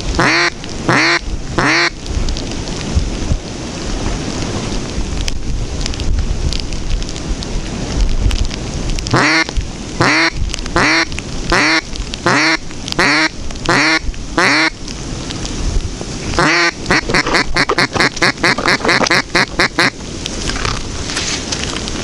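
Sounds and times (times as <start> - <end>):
wind and rain noise: 0.0 - 22.0
duck quacking loudly: 0.2 - 1.9, 9.1 - 14.7, 16.4 - 20.0.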